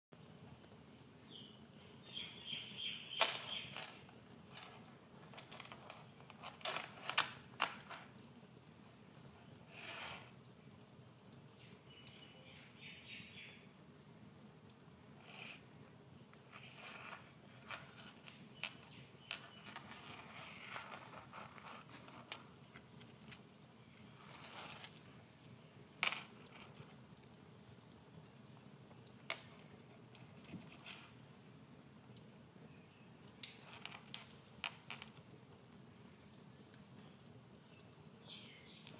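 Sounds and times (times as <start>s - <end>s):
metal collar tag clinking: 2.1s - 8.3s, 16.5s - 23.4s, 24.2s - 31.1s, 33.4s - 35.3s.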